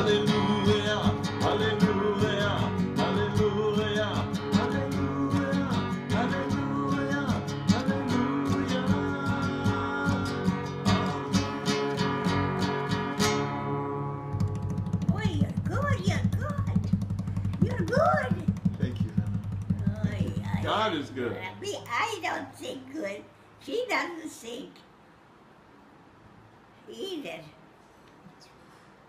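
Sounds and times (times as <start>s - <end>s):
person singing: 0.0s - 12.2s
acoustic guitar strumming: 0.0s - 22.3s.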